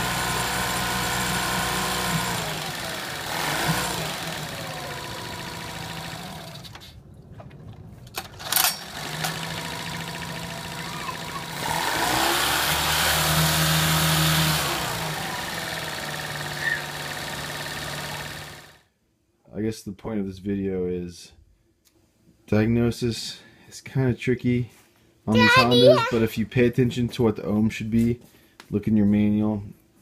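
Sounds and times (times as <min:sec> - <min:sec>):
recoil starter pull: 0:00.1 - 0:06.9, 0:08.1 - 0:18.8.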